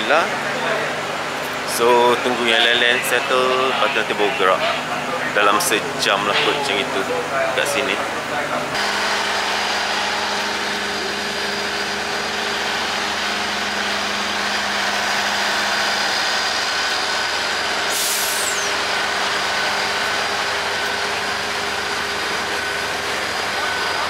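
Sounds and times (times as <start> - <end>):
locomotive engine idling: 0.0 - 24.0
burst of air hissing: 17.9 - 18.7.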